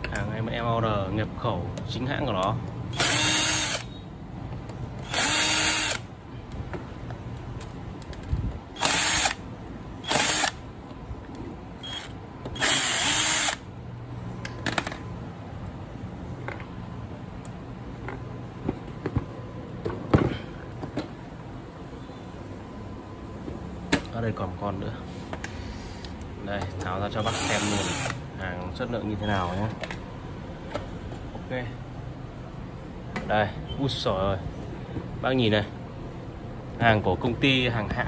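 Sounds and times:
cordless drill motor whirring: 2.9s - 4.0s, 5.0s - 6.1s, 8.8s - 9.4s, 10.0s - 10.6s, 11.8s - 13.7s, 27.2s - 28.2s.

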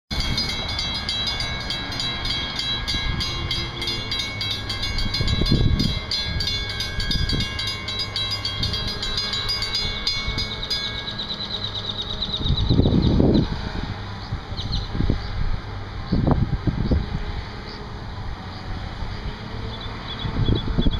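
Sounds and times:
crossing warning bell dinging: 0.1s - 13.1s.

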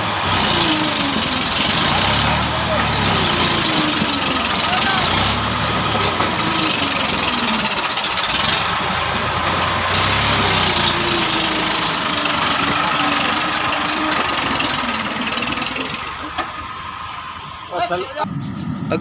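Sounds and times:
corn harvester running: 0.0s - 16.5s
tractor engine running: 0.0s - 17.7s.

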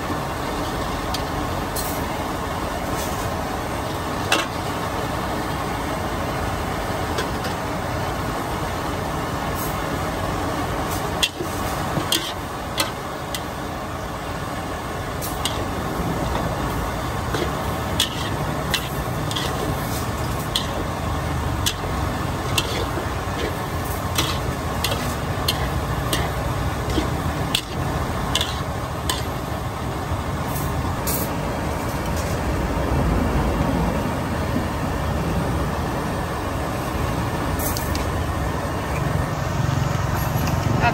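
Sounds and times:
busy street food stall din: 0.0s - 40.9s
traffic noise: 0.0s - 40.9s
utensils clicking and clinking: 17.3s - 20.9s, 21.5s - 29.3s.

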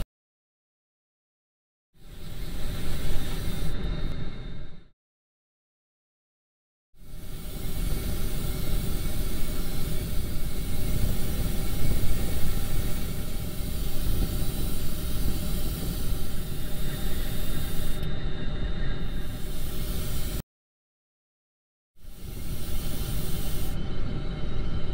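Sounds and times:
spray paint hissing: 2.0s - 3.8s, 7.0s - 18.1s, 19.1s - 20.4s, 22.0s - 23.8s.

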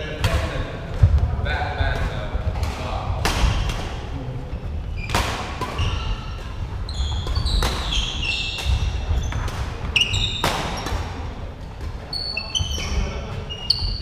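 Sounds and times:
rackets hitting shuttlecock: 1.9s - 4.0s, 5.0s - 14.0s
trainers squeaking on wooden floor: 4.6s - 11.2s, 11.9s - 14.0s.

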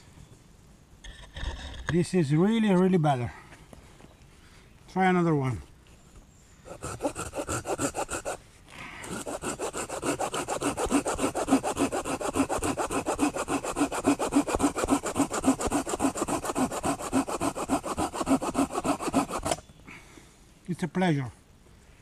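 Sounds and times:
pruning saw cutting branch: 6.7s - 8.4s, 9.1s - 19.7s.

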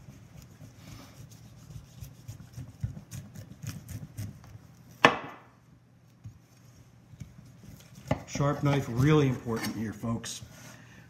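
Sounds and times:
knife slicing through meat: 1.1s - 4.5s.

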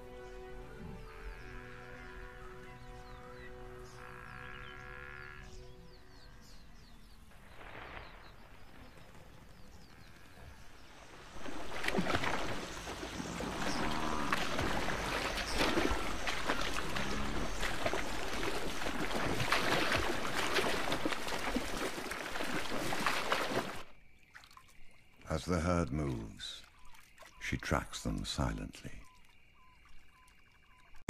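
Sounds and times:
animals splashing through water: 7.2s - 31.0s.

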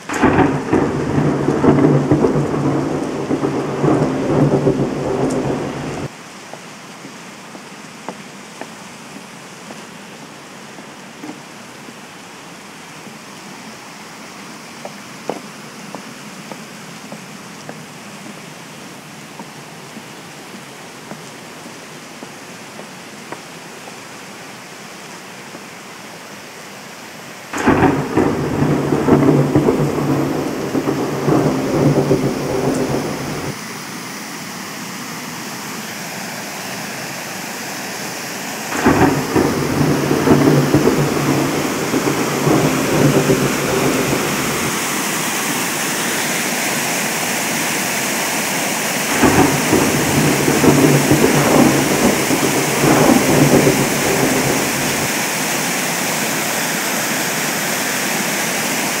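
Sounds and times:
thunder cracking: 0.0s - 6.1s, 27.6s - 33.6s, 38.7s - 45.8s, 49.0s - 55.2s
thunder rolling: 0.0s - 6.1s, 27.6s - 33.6s, 38.7s - 45.8s, 49.0s - 55.2s
rain hissing: 0.0s - 59.0s.

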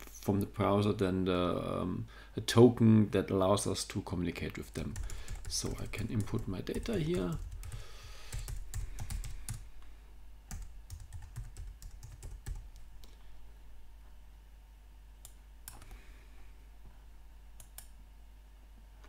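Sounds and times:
computer keyboard typing: 4.6s - 9.6s, 10.5s - 12.9s.

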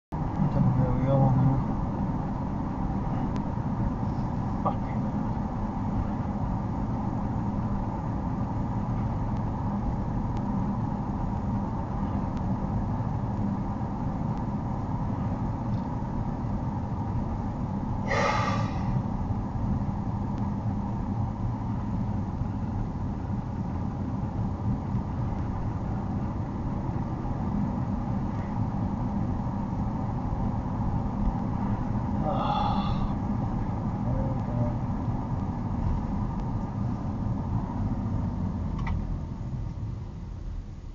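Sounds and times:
car engine and tyre rumble: 0.1s - 40.9s.

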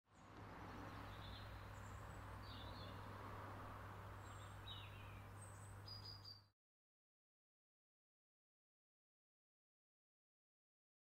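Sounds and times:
high bird chirps: 4.2s - 6.5s.

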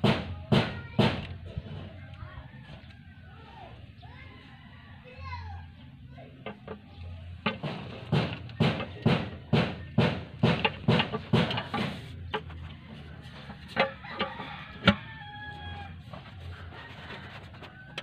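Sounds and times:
sharp knocking: 0.0s - 1.3s, 6.4s - 12.6s.

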